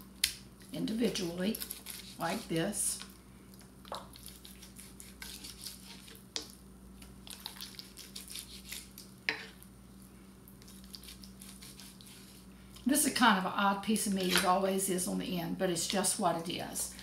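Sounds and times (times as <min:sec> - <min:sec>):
knife scraping through ribs: 0:01.1 - 0:02.6, 0:04.2 - 0:06.2, 0:07.7 - 0:09.6, 0:10.6 - 0:12.5.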